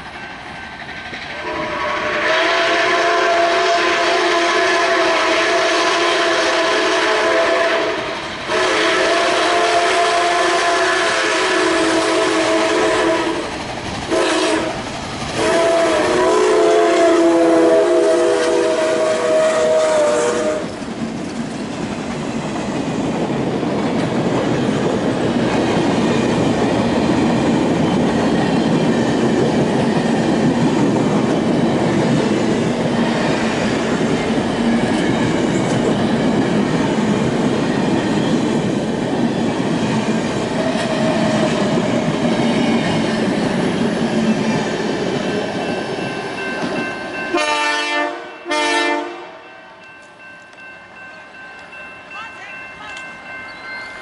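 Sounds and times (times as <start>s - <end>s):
train wheels clickety-clack: 0.0s - 2.9s, 4.7s - 47.7s
steam whistle: 1.3s - 13.5s, 14.1s - 14.8s, 15.4s - 20.8s, 47.3s - 49.4s
crossing bell ringing: 45.4s - 54.0s.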